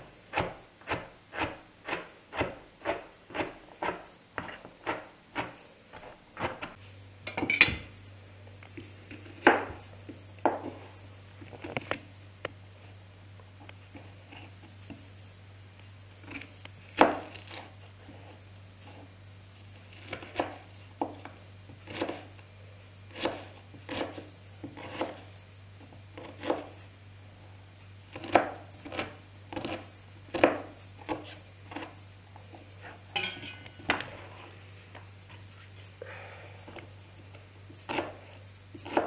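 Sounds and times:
knife chopping on cutting board: 0.3 - 5.6, 23.2 - 25.2, 38.8 - 39.0.

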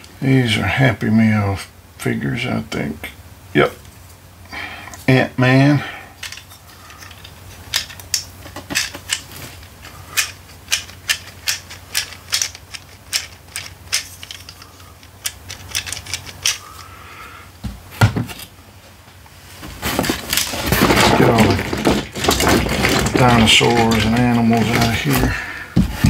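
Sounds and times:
toy mechanism clicking: 6.2 - 16.9.

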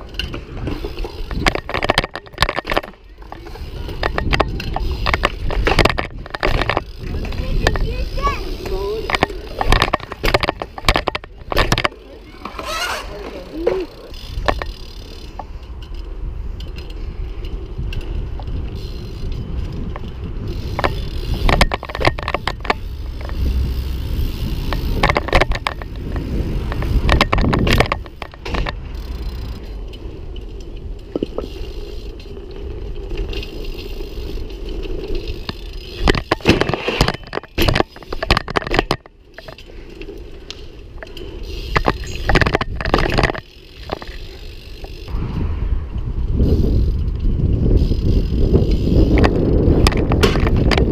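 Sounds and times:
bike knocks and scraping clatter: 0.0 - 50.9
bike tyre rumble on asphalt: 0.0 - 50.9.

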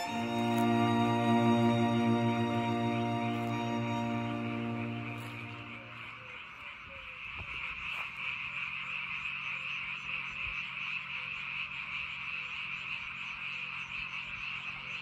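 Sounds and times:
frogs chorus: 5.5 - 15.0.

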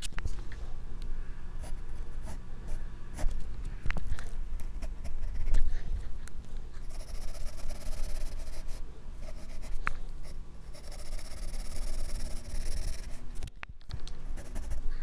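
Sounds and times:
pencil scratching on paper: 1.6 - 3.3, 4.6 - 5.9, 6.8 - 13.2, 14.4 - 15.0.

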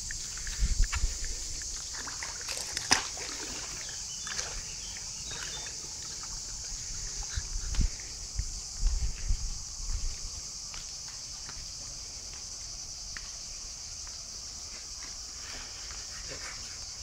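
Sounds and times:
pool water sloshing and splashing: 1.7 - 7.4.

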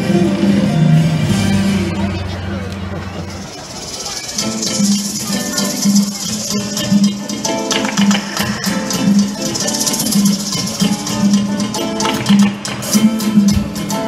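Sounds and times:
plucked guitar: 0.0 - 14.0
steady beat: 0.0 - 14.0
shaker: 3.4 - 14.0.

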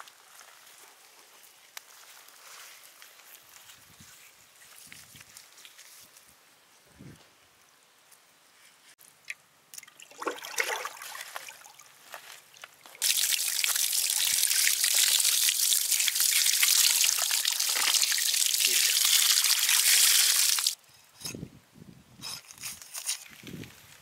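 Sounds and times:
water pouring and splashing: 9.7 - 12.0, 12.6 - 20.8.

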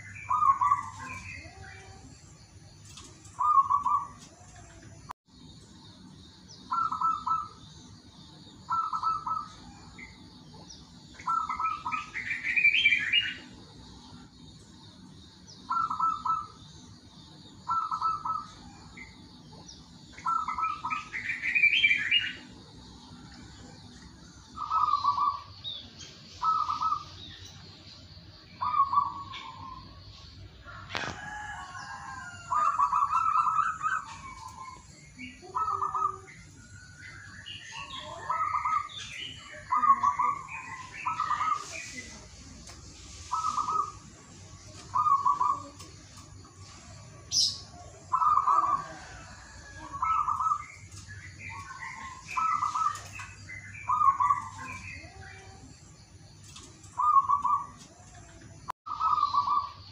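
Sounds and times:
faint high chirping: 0.0 - 59.9
dove cooing: 35.4 - 36.3, 44.9 - 45.9, 56.9 - 57.8, 58.9 - 59.7.

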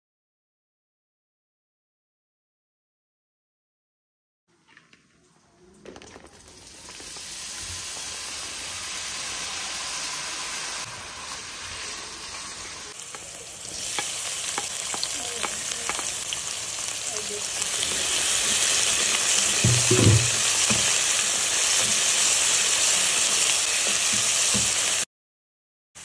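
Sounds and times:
vegetables sizzling in oil: 6.1 - 25.1
wooden spoon stirring: 13.0 - 18.8.

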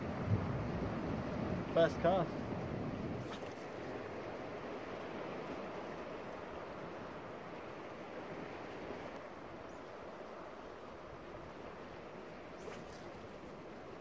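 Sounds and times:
sea surf on rocky shore: 0.0 - 14.0.

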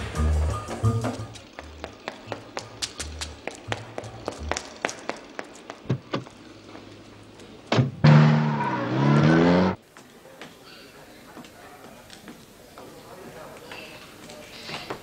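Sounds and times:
low bass notes: 2.6 - 4.7
car engine revving: 7.8 - 9.8.

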